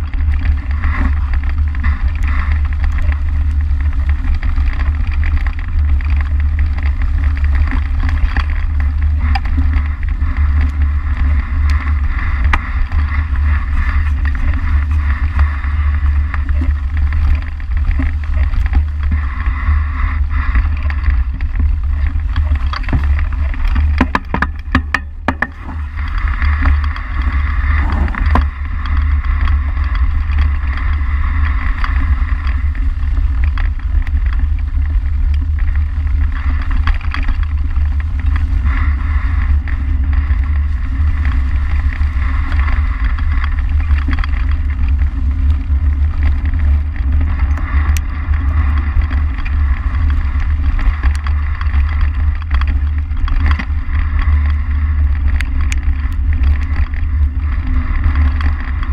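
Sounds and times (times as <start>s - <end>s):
bike rattling: 0.0s - 58.9s
tyres rolling through dry leaves: 0.0s - 58.9s
wind buffeting microphone: 0.0s - 58.9s.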